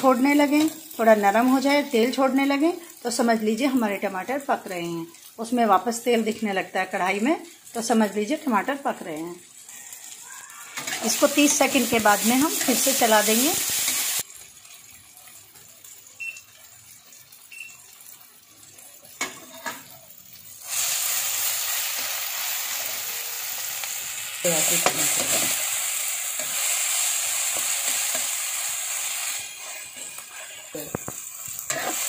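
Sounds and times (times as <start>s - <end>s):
masala sizzling in hot oil: 0.0s - 32.0s
spatula stirring and scraping: 10.7s - 11.6s, 19.1s - 19.9s, 29.3s - 32.0s.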